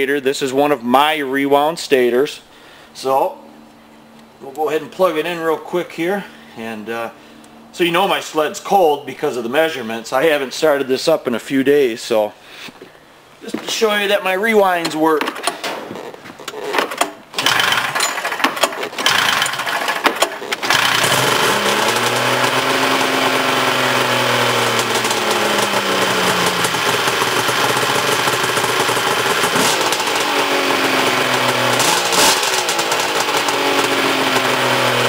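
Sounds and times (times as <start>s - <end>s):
snowmobile engine starting and idling: 16.5s - 35.0s.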